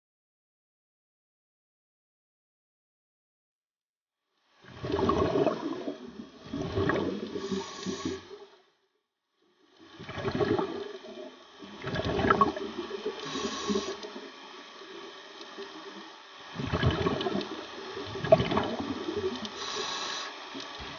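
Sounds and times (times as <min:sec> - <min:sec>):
diver exhaling bubbles: 0:04.7 - 0:08.4, 0:10.0 - 0:14.4, 0:16.6 - 0:20.2
regulator inhalation hiss: 0:07.3 - 0:08.5, 0:12.9 - 0:15.0, 0:19.0 - 0:20.9.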